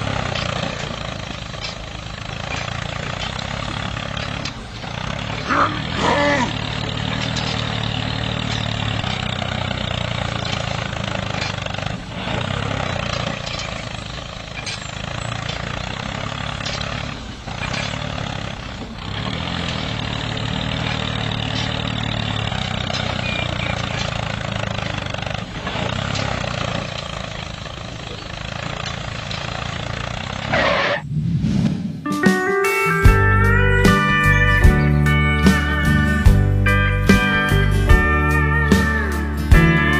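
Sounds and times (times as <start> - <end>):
small tractor engine running: 0.0 - 31.0, 33.0 - 39.9.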